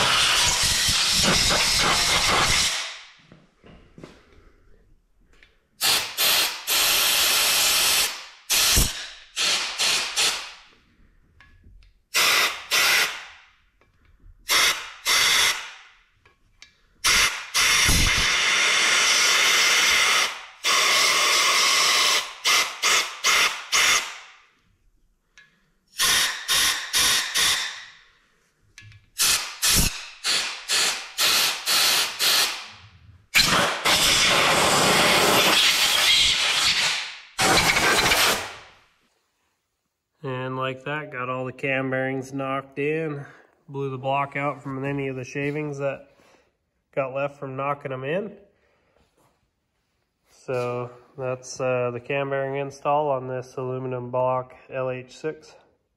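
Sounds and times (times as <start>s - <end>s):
compressed air blow gun hissing: 0.0s - 3.0s, 5.8s - 10.5s, 17.0s - 24.1s, 29.2s - 32.6s.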